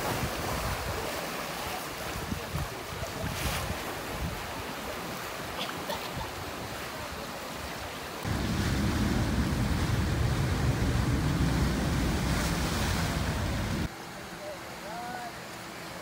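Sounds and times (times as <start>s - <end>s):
rushing water: 0.0s - 16.0s
wind rumble on microphone: 2.1s - 4.5s, 8.2s - 13.9s.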